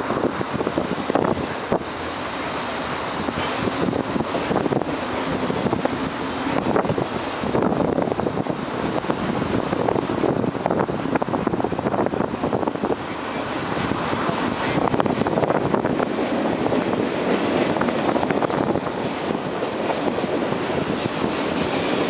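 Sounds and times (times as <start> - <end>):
freight train wheels rolling: 0.0 - 22.0
quick rail clicks: 16.6 - 20.4.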